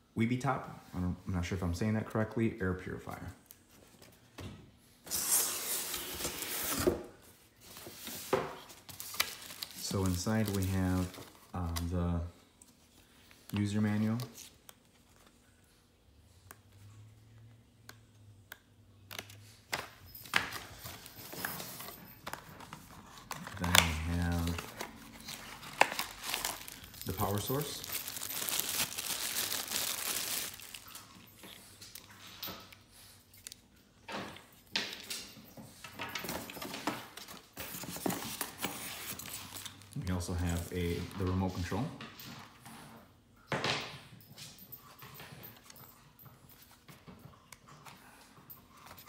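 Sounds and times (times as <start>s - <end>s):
paper pages turning: 7.6s - 12.0s, 20.5s - 31.0s
plastic packaging crinkling: 8.7s - 12.0s, 20.8s - 32.2s.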